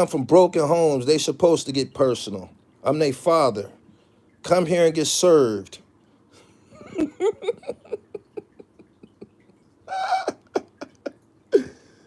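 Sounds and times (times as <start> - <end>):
man laughing: 6.8 - 12.0.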